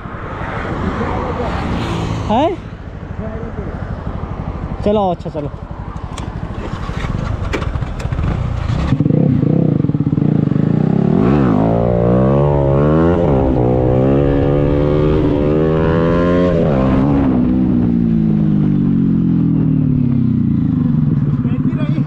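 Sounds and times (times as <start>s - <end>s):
motorcycle engine accelerating: 6.0s - 22.0s.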